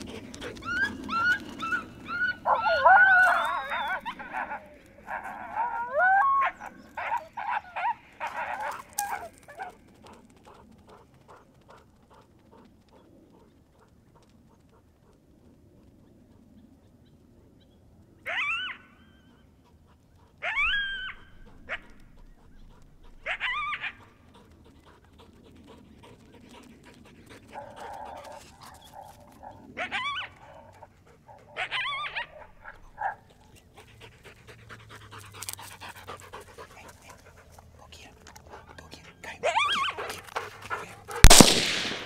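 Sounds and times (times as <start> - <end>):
dog yelping: 0.6 - 9.8, 18.3 - 19.4, 20.4 - 24.1, 27.6 - 30.8, 31.4 - 33.2, 39.4 - 40.2.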